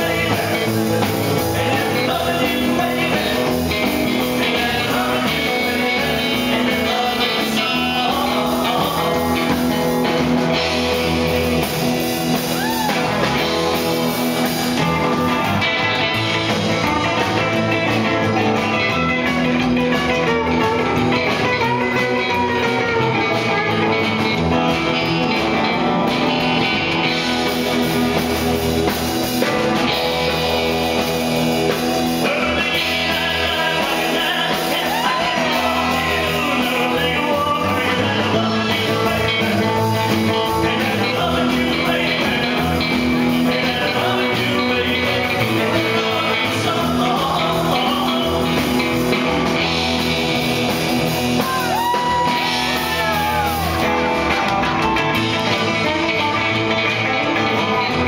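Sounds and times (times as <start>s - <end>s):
person singing: 0.0s - 10.6s, 31.7s - 49.6s, 51.3s - 58.0s
drums: 0.0s - 58.0s
electric guitar: 0.0s - 58.0s
upright double bass: 0.0s - 58.0s.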